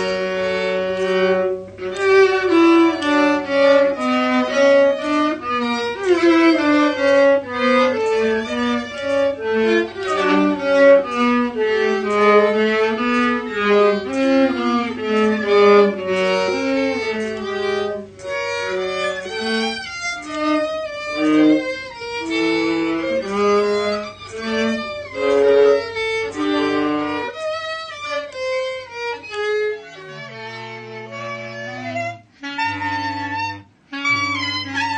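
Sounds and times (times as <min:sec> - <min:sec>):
violins playing in harmony: 0:00.0 - 0:34.9.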